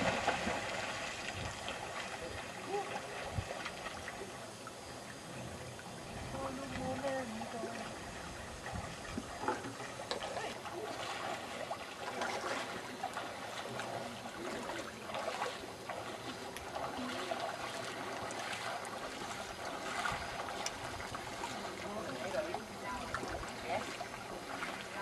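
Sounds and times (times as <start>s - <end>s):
water rushing and splashing: 0.0s - 25.0s.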